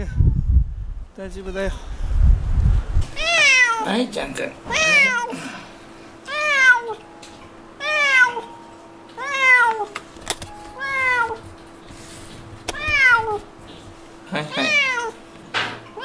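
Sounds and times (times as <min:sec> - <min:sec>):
cat meowing: 0:03.2 - 0:03.9, 0:04.7 - 0:05.3, 0:06.3 - 0:07.0, 0:07.8 - 0:08.5, 0:09.2 - 0:09.9, 0:10.8 - 0:11.4, 0:12.7 - 0:13.5, 0:14.5 - 0:15.2.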